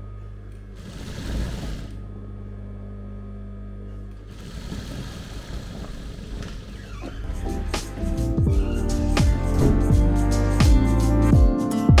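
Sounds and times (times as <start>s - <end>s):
sewing machine motor humming: 0.6s - 2.1s, 4.1s - 7.3s
sewing machine stitching bursts: 0.8s - 2.0s
loud knock: 9.5s - 10.0s.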